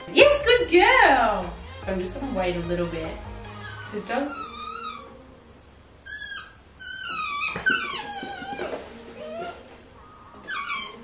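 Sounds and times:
dog whining: 3.3s - 11.0s.

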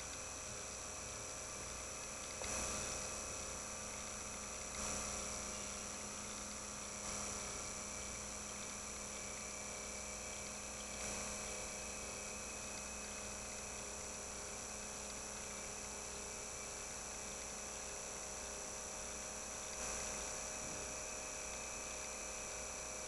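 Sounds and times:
electrical hum and hiss: 0.0s - 23.0s
faint high whine: 0.0s - 23.0s.

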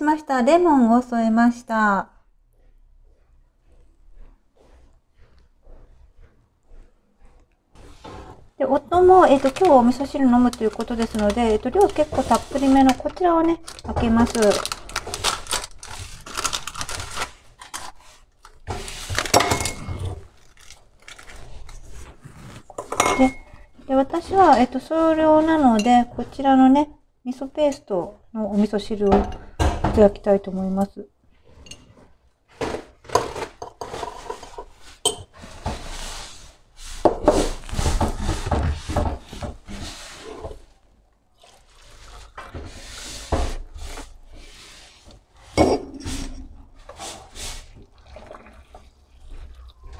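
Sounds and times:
spoon stirring in ceramic cup: 8.9s - 15.0s, 22.0s - 23.6s, 33.6s - 35.4s
teaspoon scraping glass jar: 8.9s - 17.0s, 18.8s - 23.6s
tableware rustles and knocks: 18.6s - 20.7s, 22.6s - 26.4s, 31.4s - 36.2s, 36.9s - 40.7s, 45.5s - 47.0s.

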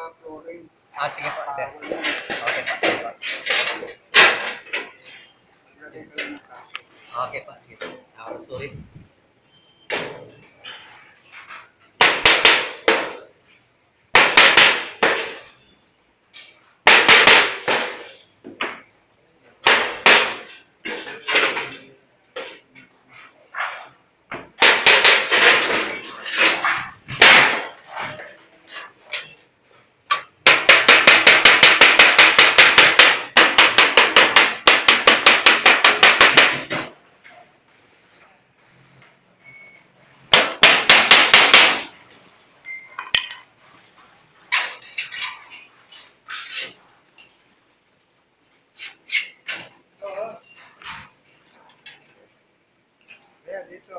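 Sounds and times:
hammer striking sheet metal: 1.8s - 4.9s, 12.0s - 13.3s, 14.1s - 15.5s, 16.8s - 18.2s, 19.6s - 21.8s, 24.6s - 28.2s, 30.1s - 37.0s, 40.3s - 42.0s.

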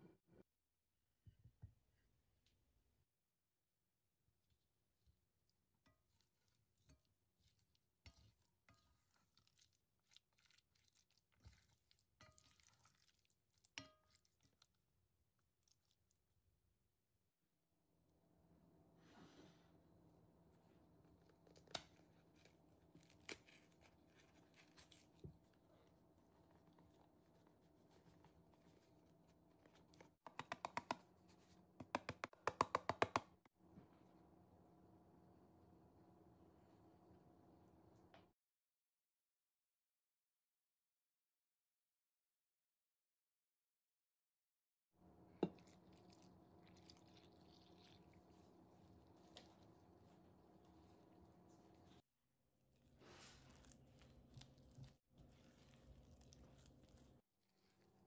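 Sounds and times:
spoon mashing wet beans: 21.1s - 33.2s, 45.4s - 52.0s, 53.0s - 58.0s
spoon knocking pot: 31.8s - 33.2s
cardboard box tapped over bowl: 31.8s - 33.3s.

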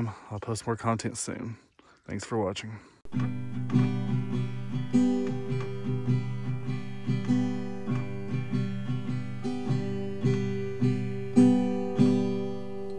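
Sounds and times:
acoustic guitar music: 3.1s - 12.9s.

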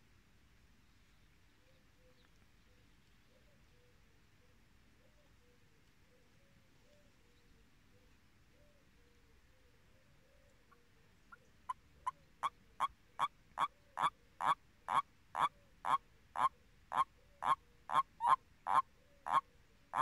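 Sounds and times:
toad croaking: 11.7s - 20.0s.

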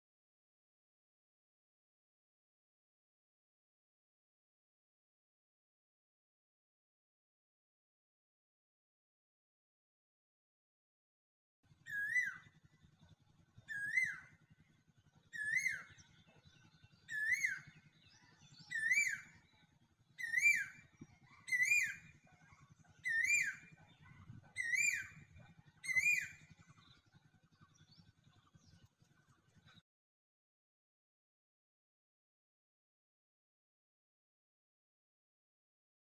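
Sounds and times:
faint low hum: 11.7s - 29.8s
high whistled call: 24.6s - 25.1s.

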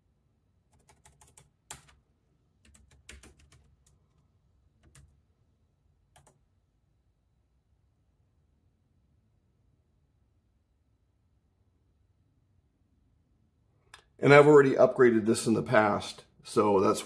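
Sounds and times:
typing on computer keyboard: 0.7s - 2.0s, 2.6s - 5.2s, 6.1s - 6.4s.

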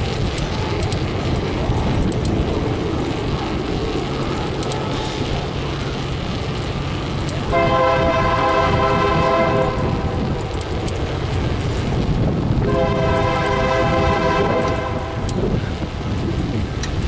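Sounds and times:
wind and movement rumble: 0.0s - 17.0s
locomotive air horn: 7.5s - 10.2s, 12.6s - 15.3s.

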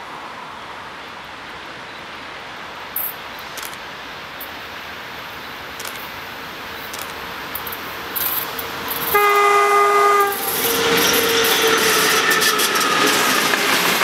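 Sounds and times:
approaching train: 0.0s - 14.0s
train air horn blast: 9.0s - 13.0s.

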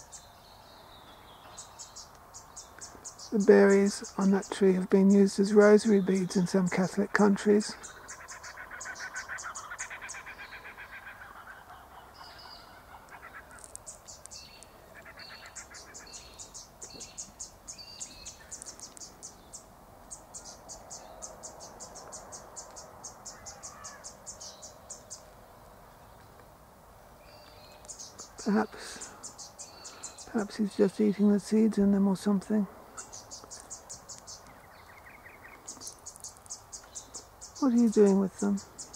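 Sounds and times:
animal chirping rapidly: 7.7s - 16.6s.

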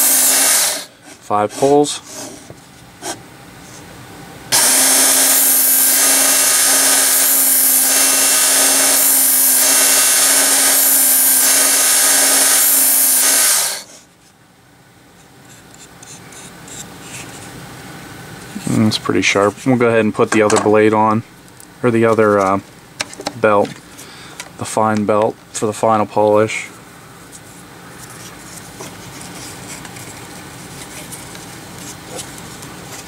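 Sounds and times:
knife grinding on abrasive belt: 0.0s - 0.9s, 4.6s - 13.9s
sharpener belt motor humming: 0.0s - 0.9s, 4.5s - 13.9s.

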